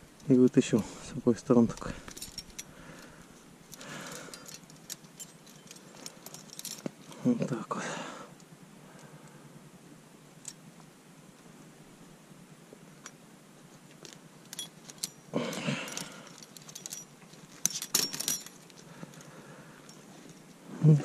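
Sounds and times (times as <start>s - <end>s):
metal trap clicking and jingling: 1.6s - 7.2s, 14.4s - 20.6s.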